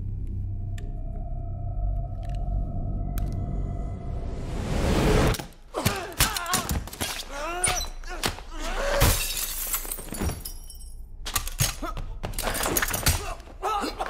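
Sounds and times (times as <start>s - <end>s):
people grunting and crying out: 5.6s - 9.2s, 11.6s - 14.0s.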